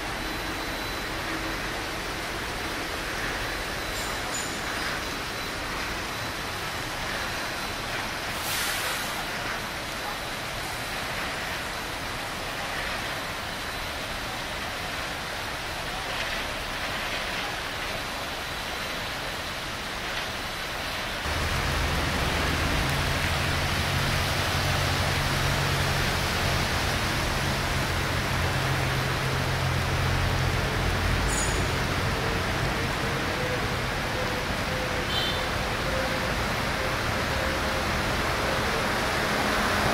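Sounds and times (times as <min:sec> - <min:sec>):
water and tyre wash: 0:00.0 - 0:39.9
low engine rumble: 0:21.2 - 0:34.0.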